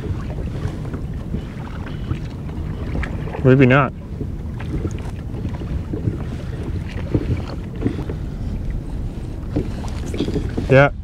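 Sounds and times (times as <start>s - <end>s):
water lapping against hull: 0.0s - 11.0s
wind buffeting microphone: 0.0s - 11.0s.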